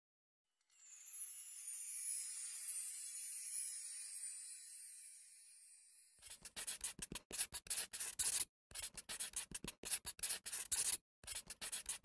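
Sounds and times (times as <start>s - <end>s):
pen scribbling on paper: 6.2s - 12.0s.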